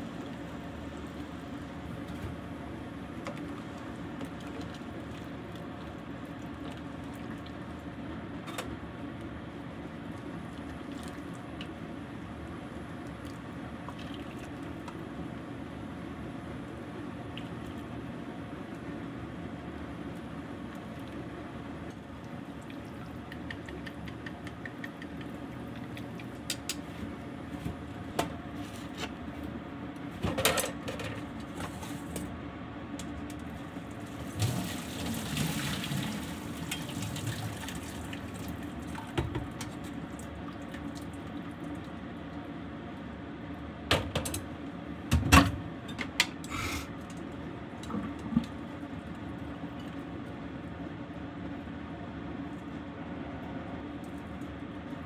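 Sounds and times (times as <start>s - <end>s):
steady low hum: 0.0s - 34.4s
water pouring into sink: 34.2s - 39.1s.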